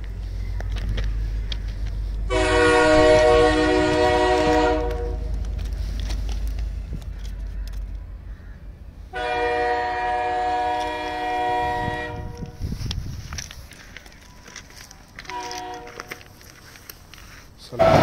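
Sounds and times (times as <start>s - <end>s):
train horn blasts: 2.3s - 5.4s, 9.1s - 12.7s, 15.2s - 16.2s, 17.7s - 18.0s.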